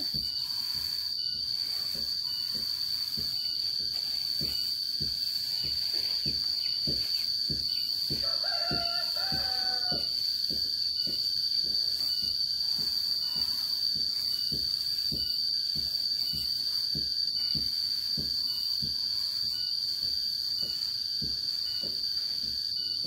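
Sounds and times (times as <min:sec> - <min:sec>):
insects droning: 0:00.0 - 0:23.0
rooster crowing: 0:08.0 - 0:10.5.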